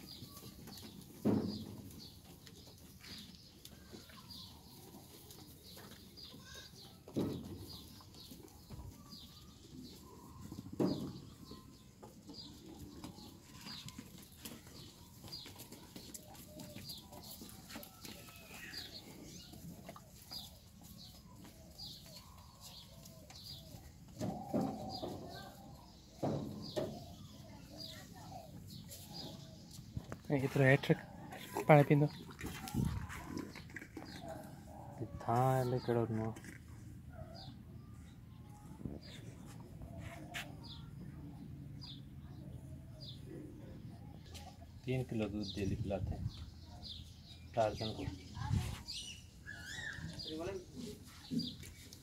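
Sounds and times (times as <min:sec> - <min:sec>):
bird chirping: 0:40.0 - 0:51.9
high bird chirp: 0:48.3 - 0:50.4.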